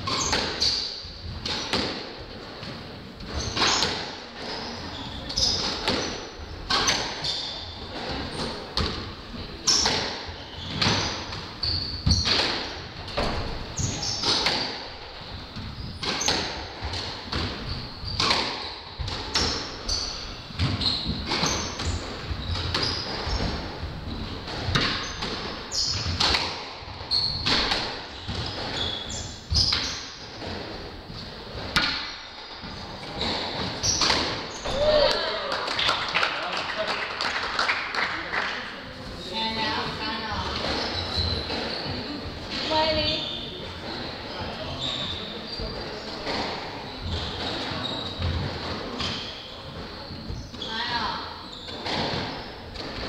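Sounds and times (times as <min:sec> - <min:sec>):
shoes squeaking on wooden floor: 0:00.0 - 0:35.4, 0:38.9 - 0:53.0
ball hitting walls: 0:24.5 - 0:26.8, 0:31.6 - 0:36.1.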